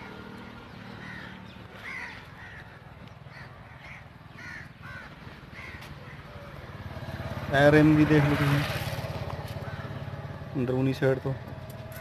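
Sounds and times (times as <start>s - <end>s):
crows cawing: 0.0s - 7.1s, 9.3s - 10.4s.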